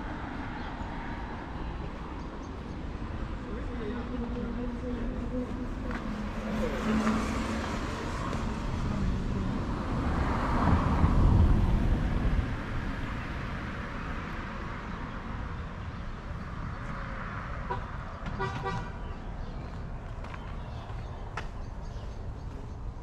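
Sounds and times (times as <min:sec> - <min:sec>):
vehicle passing by: 0:00.0 - 0:21.1
car horn toot: 0:17.7 - 0:19.0.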